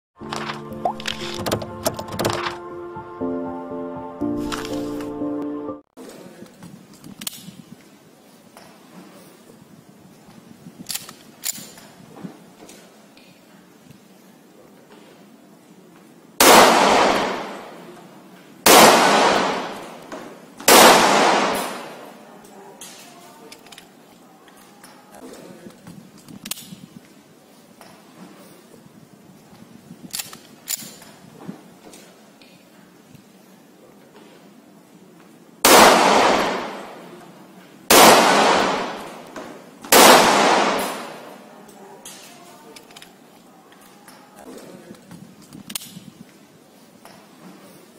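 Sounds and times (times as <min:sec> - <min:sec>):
pistol shots echoing: 0:16.4 - 0:17.9, 0:18.7 - 0:22.2, 0:35.6 - 0:37.2, 0:37.9 - 0:41.4.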